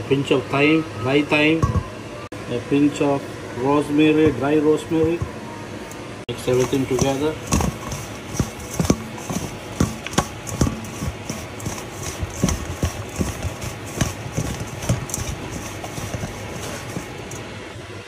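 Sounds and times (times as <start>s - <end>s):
food tapping on metal tray: 6.5s - 17.1s.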